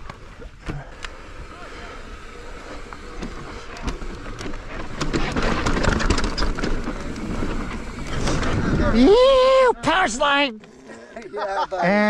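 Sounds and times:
bike tyres crackling over gravel: 0.0s - 9.6s
wind rumbling on microphone: 0.0s - 9.6s.

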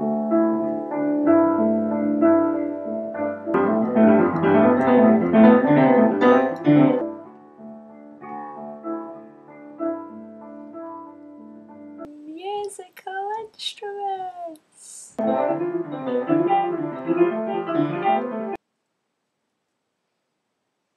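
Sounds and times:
keyboard playing piano sound: 0.0s - 12.1s, 15.2s - 18.6s.

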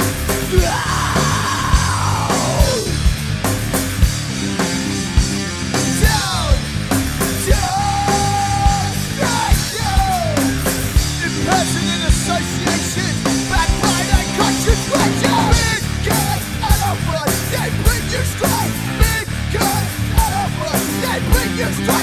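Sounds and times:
heavy rock band playing: 0.0s - 22.0s
sliding high guitar notes: 11.4s - 17.3s
pounding drum hits: 13.5s - 16.3s.

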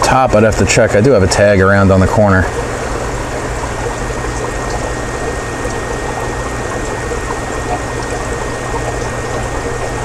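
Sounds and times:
low pump hum: 0.0s - 10.0s
water trickling and splashing: 0.6s - 10.0s.

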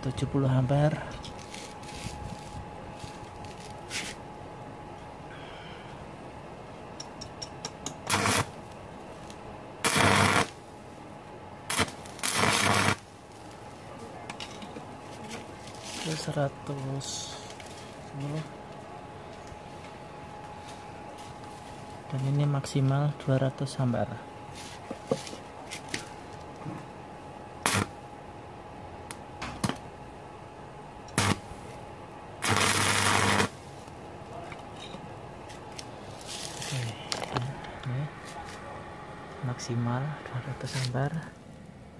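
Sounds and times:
welding arc crackle: 7.8s - 10.6s, 11.6s - 13.7s, 27.6s - 28.0s, 31.1s - 31.8s, 32.4s - 34.0s.

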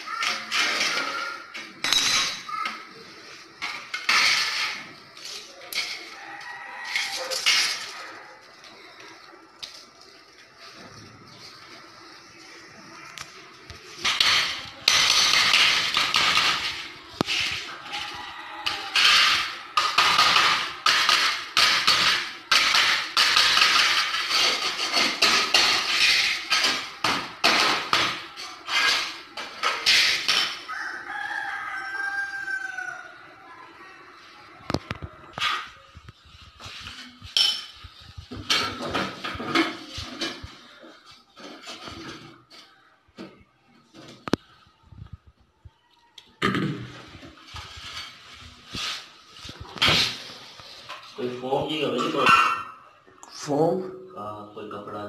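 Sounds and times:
sheeting scraping on concrete: 0.0s - 32.9s, 34.1s - 42.8s, 47.0s - 52.5s
rooster crowing: 6.1s - 8.3s, 17.6s - 19.5s, 30.7s - 33.2s.

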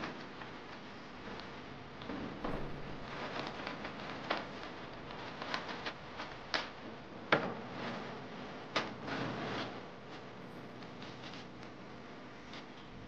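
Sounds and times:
sharp knocks: 2.4s - 3.1s
dry tea leaves rustling: 2.5s - 12.5s.

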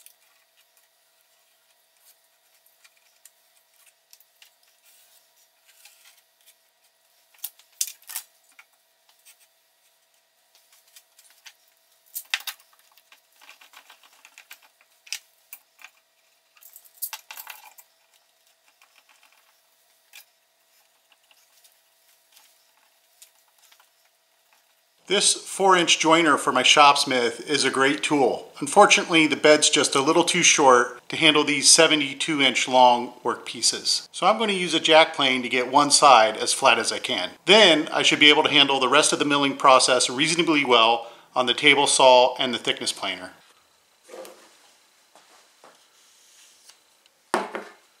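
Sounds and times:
faint steady hum: 0.0s - 48.0s.

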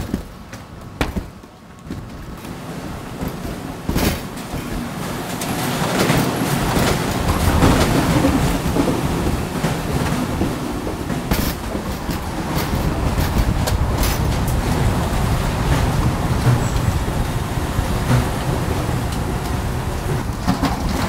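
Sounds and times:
sharp knocks: 0.0s - 2.2s
baggage conveyor rumble and rattle: 0.0s - 21.0s.

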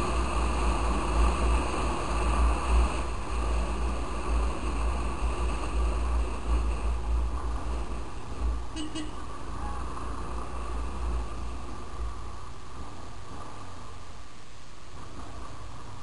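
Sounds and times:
motorcycle engine running: 0.0s - 13.9s
wind buffeting microphone: 0.0s - 16.0s.

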